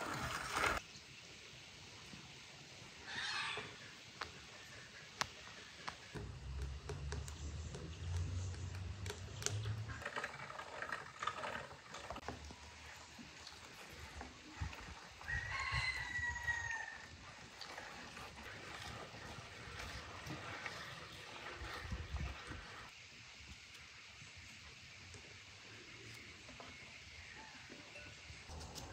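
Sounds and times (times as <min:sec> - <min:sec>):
rooster crowing: 0:03.1 - 0:03.8, 0:15.2 - 0:17.1.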